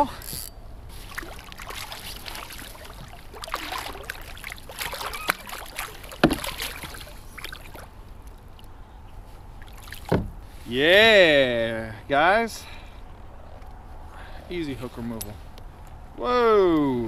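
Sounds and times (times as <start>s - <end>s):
water splashes: 0.9s - 8.8s, 9.5s - 10.4s
handling knocks: 6.2s - 6.6s.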